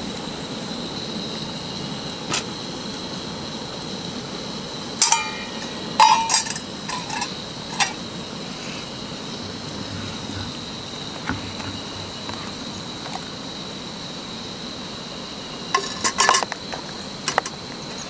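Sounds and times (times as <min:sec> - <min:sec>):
metal pot clinking on camp stove: 0:05.0 - 0:08.0, 0:15.7 - 0:17.6.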